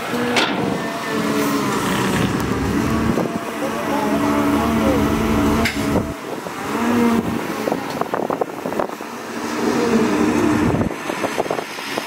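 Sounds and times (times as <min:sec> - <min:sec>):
excavator diesel engine running: 0:00.8 - 0:07.6.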